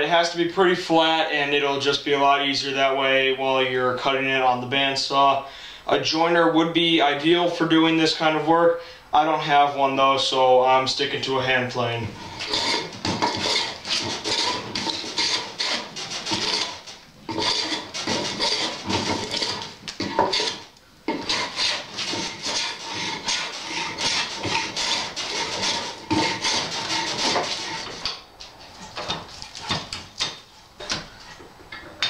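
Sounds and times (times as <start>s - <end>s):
hand plane rasping across wood: 12.2s - 28.2s.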